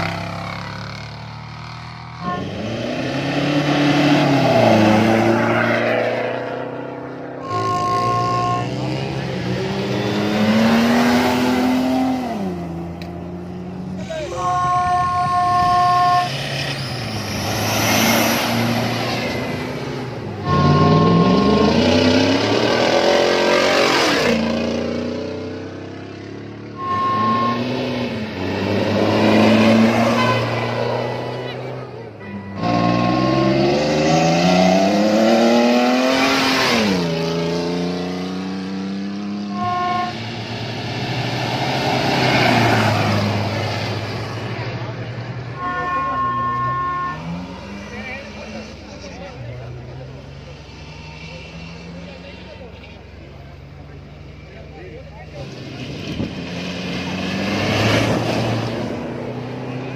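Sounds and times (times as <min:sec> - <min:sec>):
truck engine accelerating: 0:00.0 - 0:59.9
steady horn tone: 0:02.2 - 0:03.0, 0:07.4 - 0:09.3, 0:14.0 - 0:16.6, 0:20.3 - 0:22.4, 0:26.7 - 0:28.2, 0:28.9 - 0:33.8, 0:39.4 - 0:40.4, 0:45.5 - 0:48.3.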